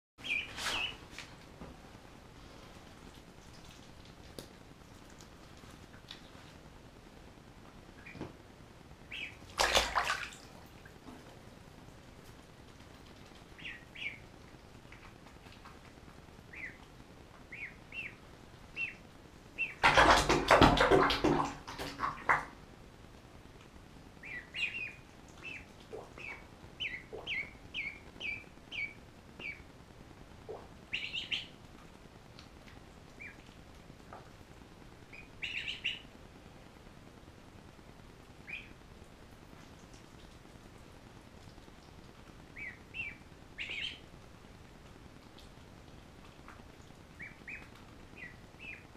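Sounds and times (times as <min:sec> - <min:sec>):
ducklings peeping: 0:00.2 - 0:01.2, 0:07.9 - 0:08.4, 0:09.0 - 0:10.2, 0:12.7 - 0:22.5, 0:24.2 - 0:29.7, 0:30.4 - 0:31.6, 0:33.1 - 0:33.6, 0:35.0 - 0:36.1, 0:38.4 - 0:38.8, 0:42.4 - 0:44.1, 0:46.2 - 0:48.9
bath water splash: 0:09.4 - 0:10.9, 0:19.8 - 0:22.5.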